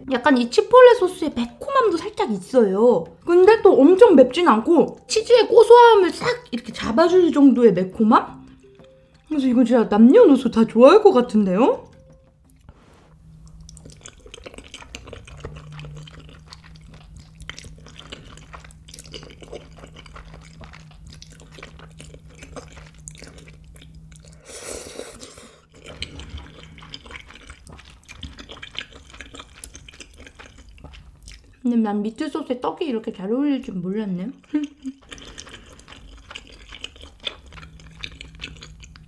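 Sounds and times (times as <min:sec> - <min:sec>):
wet chewing: 0:00.2 - 0:31.7, 0:33.6 - 0:39.0
noodles being slurped: 0:12.7 - 0:31.5, 0:34.6 - 0:39.0.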